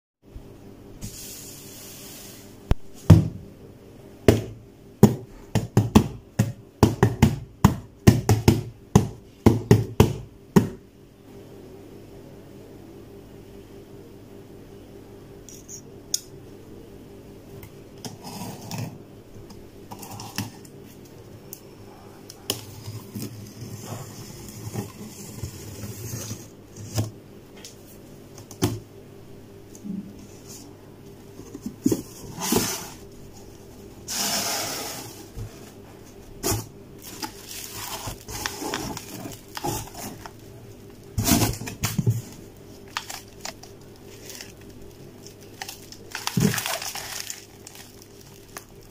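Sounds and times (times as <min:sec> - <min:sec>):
faint steady hum: 0:00.2 - 0:48.9
plastic wrap rustling: 0:36.4 - 0:48.9.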